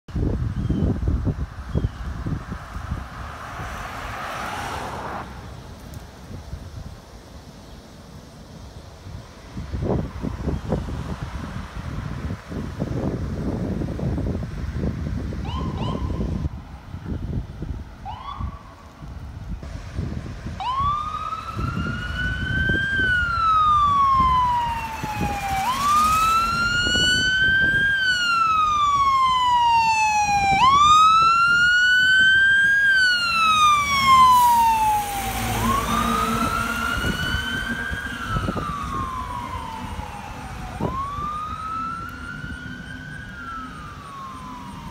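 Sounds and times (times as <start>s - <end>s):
truck engine and road noise: 0.1s - 44.9s
fire engine siren wailing: 15.2s - 44.9s.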